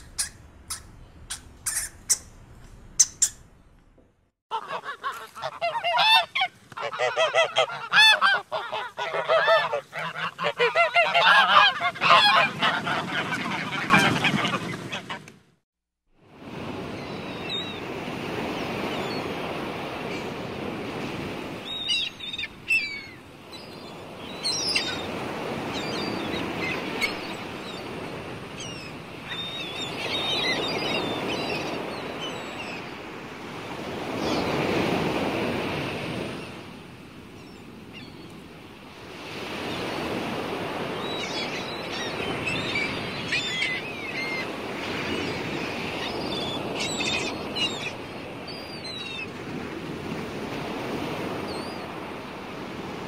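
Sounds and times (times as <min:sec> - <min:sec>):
small birds chirping: 0:00.0 - 0:03.8
rushing surf or wind: 0:16.2 - 0:53.0.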